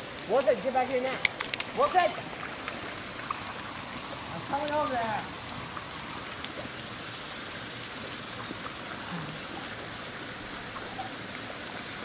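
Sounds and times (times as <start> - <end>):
creek water running: 0.0 - 12.0.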